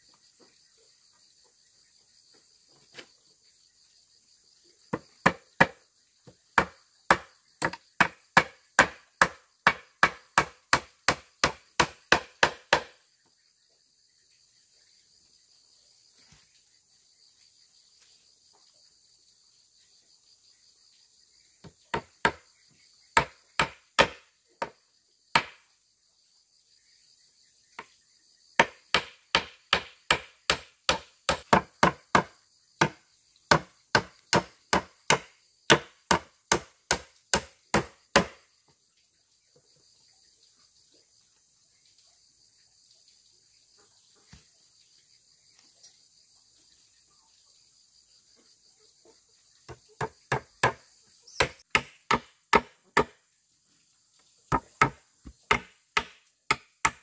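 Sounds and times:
insects buzzing: 0.0 - 57.0
tool chopping wood: 4.9 - 13.0, 21.6 - 22.4, 23.2 - 25.7, 28.6 - 38.5, 49.7 - 53.2, 54.5 - 57.0.

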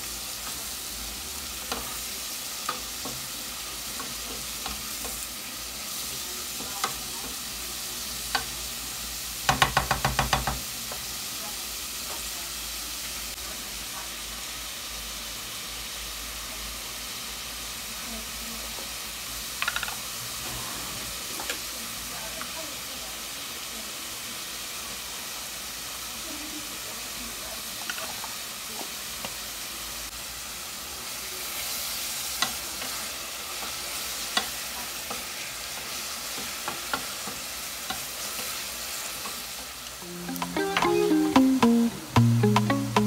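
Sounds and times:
vegetables sizzling in a pot: 0.0 - 43.0
spoon tapping against a pot: 9.5 - 10.6, 19.6 - 20.0.

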